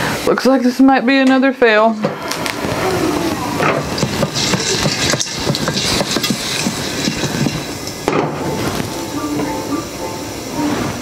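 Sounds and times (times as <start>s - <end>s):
pot scraping on grate: 3.6s - 8.0s
corn kernels rattling in a pot: 3.6s - 8.1s
pot lid clattering: 3.6s - 8.6s.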